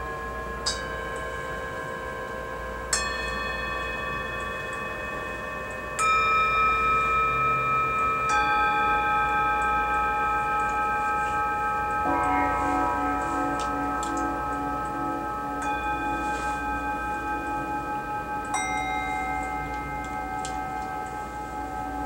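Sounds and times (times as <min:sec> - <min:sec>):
meditation bells ringing: 0:00.0 - 0:22.0
low pulsing tone: 0:09.8 - 0:22.0.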